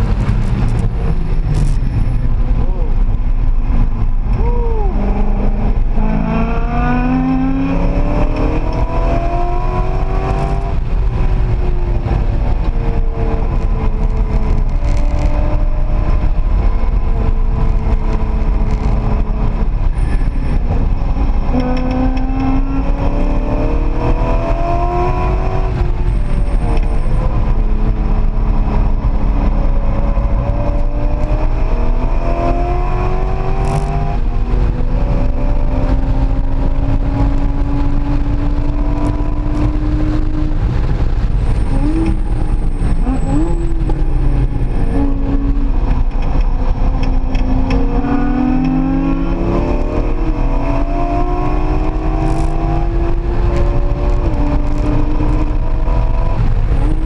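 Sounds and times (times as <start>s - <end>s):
road and wind rumble: 0.0s - 57.0s
sports car engine accelerating: 0.0s - 57.0s.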